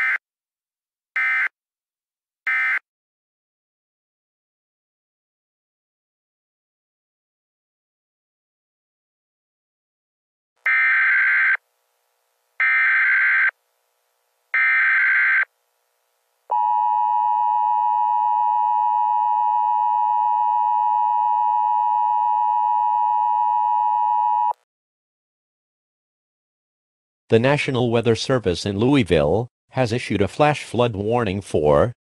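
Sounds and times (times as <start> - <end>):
two-tone alarm: 1.2 - 1.5, 2.5 - 2.8, 10.7 - 11.6, 12.6 - 13.5, 14.6 - 15.5, 16.5 - 24.6.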